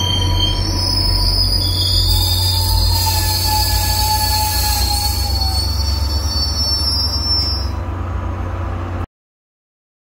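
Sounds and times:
high thin wheel squeal: 0.0s - 7.9s
train rolling rumble: 0.0s - 9.1s.

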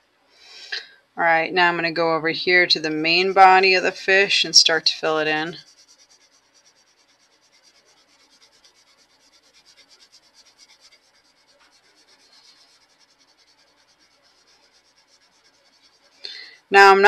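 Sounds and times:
colored pencil scratching on paper: 2.8s - 16.2s.

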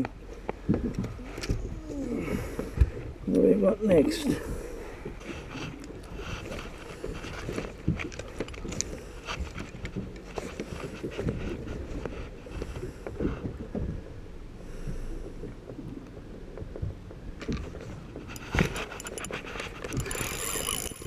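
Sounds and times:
boat and water noise: 0.0s - 21.0s
fishing gear knocking and rattling: 3.8s - 14.0s, 16.6s - 21.0s.

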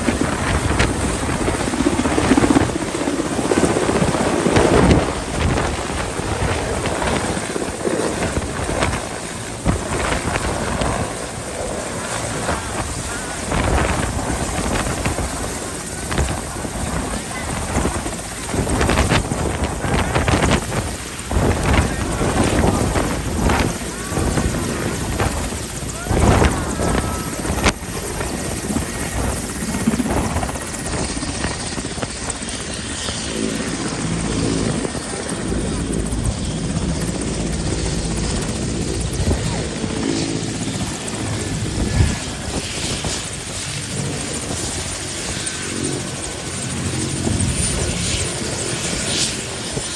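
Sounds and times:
rotor blades beating: 0.0s - 32.1s
helicopter turbine whine: 0.0s - 49.9s.

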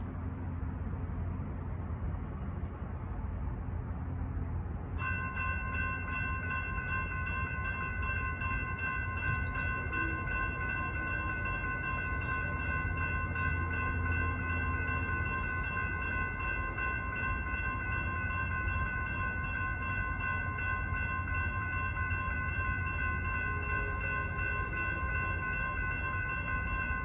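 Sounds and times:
low steady rumble: 0.0s - 17.7s
railroad crossing bell ringing: 5.0s - 27.0s.

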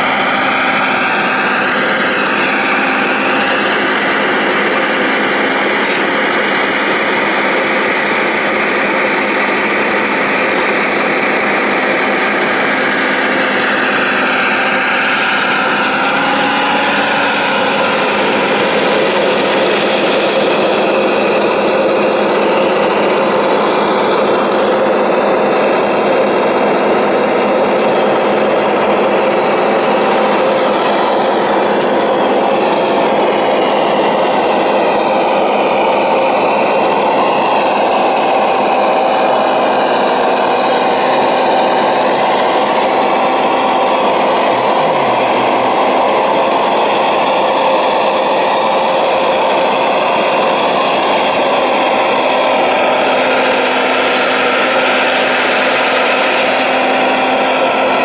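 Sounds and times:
hydraulic pump and motors running: 0.0s - 58.0s
whine sliding in pitch: 0.0s - 58.0s.

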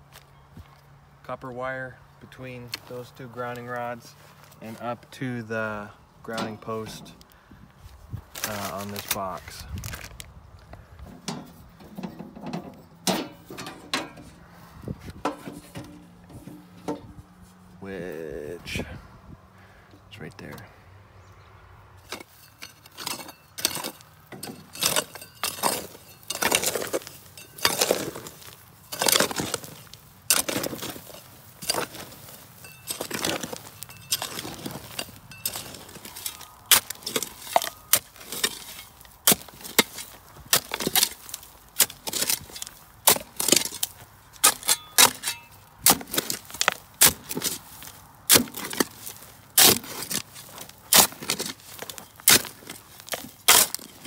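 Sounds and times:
shovel digging stony soil: 2.5s - 7.3s, 8.2s - 10.3s, 11.0s - 18.6s, 22.0s - 54.0s.

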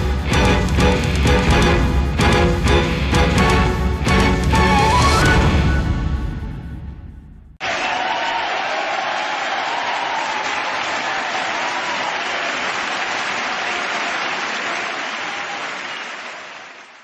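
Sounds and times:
crowd applauding: 7.6s - 17.0s.

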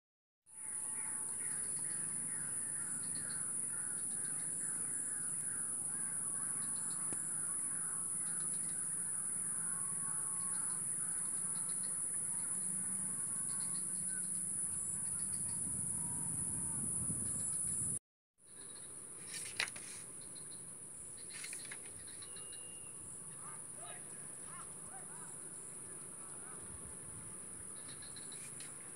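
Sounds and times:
high-pitched insect drone: 6.1s - 17.9s.

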